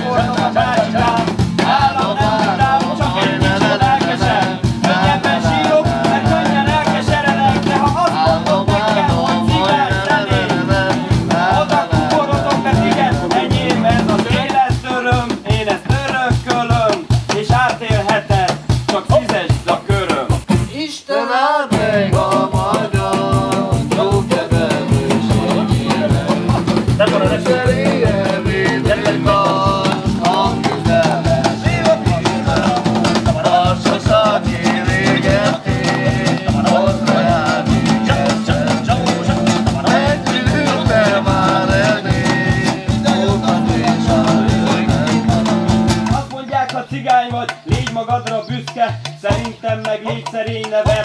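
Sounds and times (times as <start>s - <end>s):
person singing: 0.0s - 14.8s, 20.7s - 51.0s
metal can hand drum: 0.0s - 20.7s, 21.7s - 51.0s
cajon beat: 0.0s - 21.1s, 21.7s - 51.0s
acoustic guitar: 0.0s - 51.0s.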